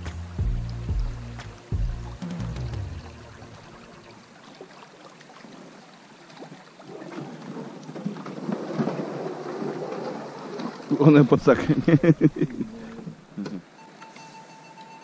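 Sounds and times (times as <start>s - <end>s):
background music: 0.0s - 4.3s
rain falling on water: 0.0s - 15.0s
river water splashing around boat: 0.0s - 15.0s.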